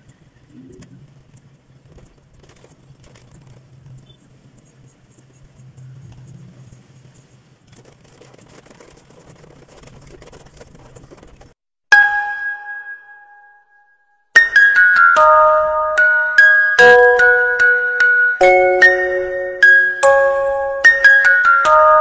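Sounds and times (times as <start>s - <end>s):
two-tone chime: 11.9s - 22.0s.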